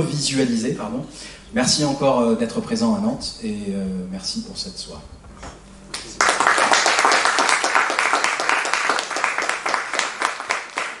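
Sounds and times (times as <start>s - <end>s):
audience applauding: 6.0s - 11.0s.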